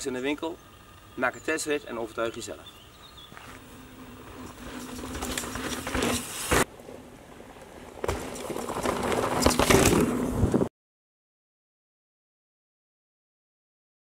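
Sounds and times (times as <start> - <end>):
bike tyres rolling over dirt: 0.0 - 10.7
sharp knocks of passing bike: 4.2 - 6.7, 8.0 - 10.6.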